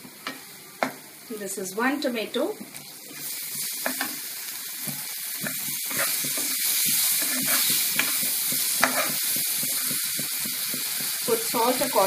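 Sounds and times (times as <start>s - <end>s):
tomato sizzling in hot oil: 0.0s - 12.0s
wooden spatula scraping a pan: 5.4s - 11.1s.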